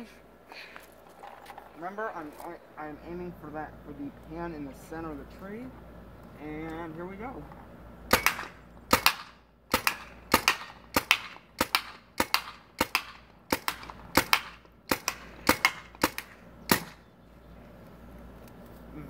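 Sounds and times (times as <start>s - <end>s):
paintball rifle firing: 8.1s - 17.0s.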